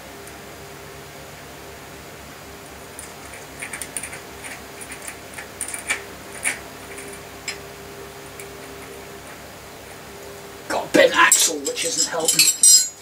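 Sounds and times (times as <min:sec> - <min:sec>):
light metallic clicks of spanners: 0:11.3 - 0:13.0.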